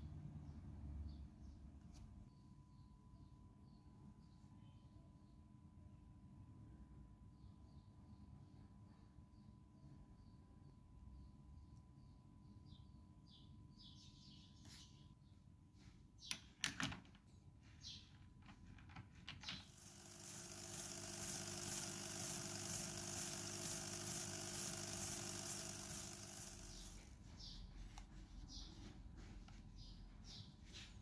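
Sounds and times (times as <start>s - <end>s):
cordless drill running: 19.6s - 27.2s.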